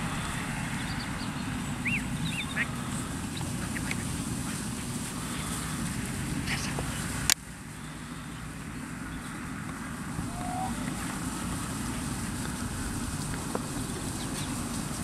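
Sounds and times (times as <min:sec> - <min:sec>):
wind rumble on microphone: 0:00.0 - 0:15.0
faint gliding tone: 0:10.2 - 0:11.4.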